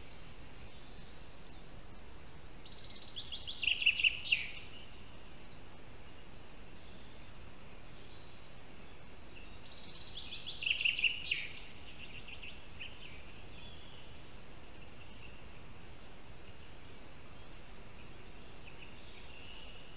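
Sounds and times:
forest background hiss: 0:00.0 - 0:19.9
songbird singing: 0:00.0 - 0:19.9.

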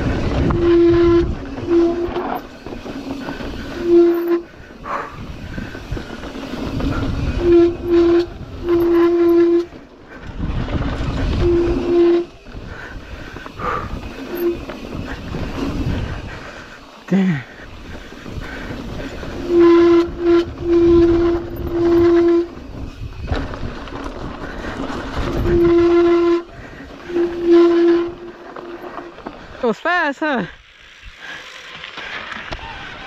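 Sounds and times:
tyres rumbling on dirt: 0:00.0 - 0:33.0
wind: 0:00.0 - 0:33.0
bike brakes squealing: 0:00.4 - 0:09.8, 0:11.3 - 0:16.2, 0:24.6 - 0:29.2, 0:31.2 - 0:33.0.

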